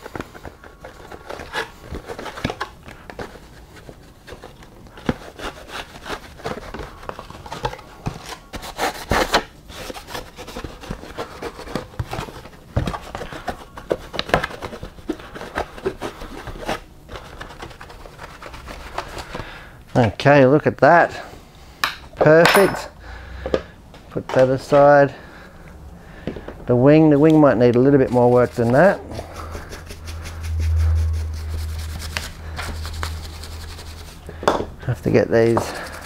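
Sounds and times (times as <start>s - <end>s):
cloth rubbing plastic shell: 27.2s - 34.4s.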